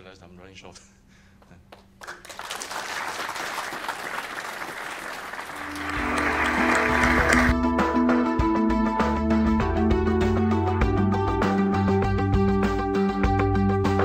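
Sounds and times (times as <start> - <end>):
audience applauding: 2.0 - 7.6
music with bass line: 5.7 - 14.0.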